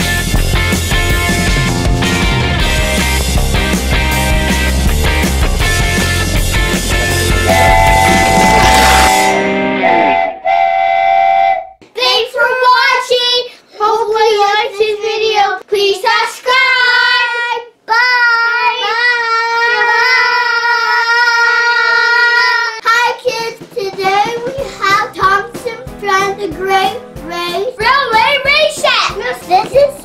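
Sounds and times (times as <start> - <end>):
steady tone: 3.0 - 11.8.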